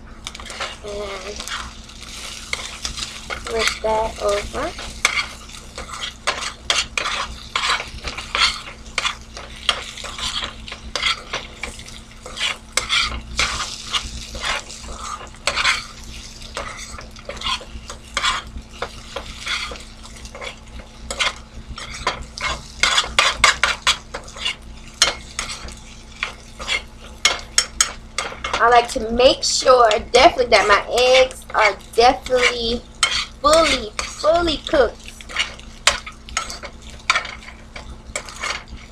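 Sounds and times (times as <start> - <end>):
food sizzling in a pan: 0.0 - 38.9
metal spoon scraping a frying pan: 0.2 - 38.9.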